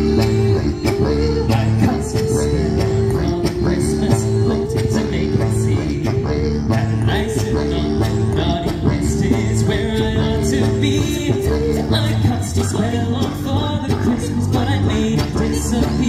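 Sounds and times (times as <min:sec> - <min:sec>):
small chorus singing: 0:00.0 - 0:12.8
instrumental backing music: 0:00.0 - 0:16.0.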